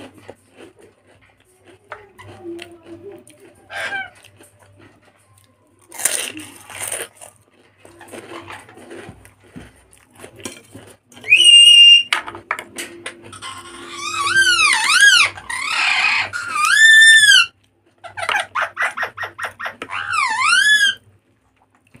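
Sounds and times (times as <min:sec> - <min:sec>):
crunching and chewing crisps: 0:00.0 - 0:11.4.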